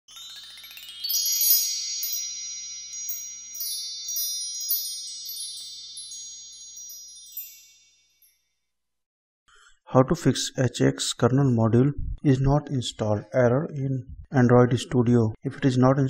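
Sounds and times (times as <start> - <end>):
bright chime strikes: 0.1 - 8.5
high ringing tones: 0.1 - 8.6.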